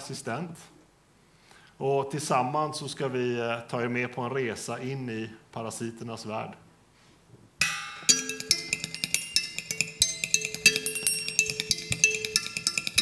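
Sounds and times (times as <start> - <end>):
fast tapping with sticks: 7.6 - 13.0.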